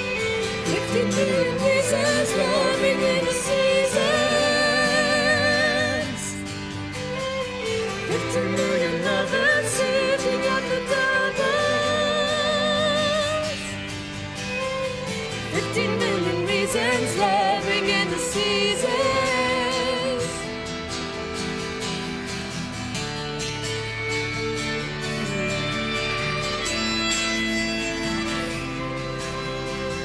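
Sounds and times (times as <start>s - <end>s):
person singing with vibrato: 0.0s - 6.6s, 7.9s - 13.9s, 15.4s - 20.6s
accordion: 0.0s - 30.0s
acoustic guitar: 0.0s - 30.0s
violin: 0.0s - 30.0s.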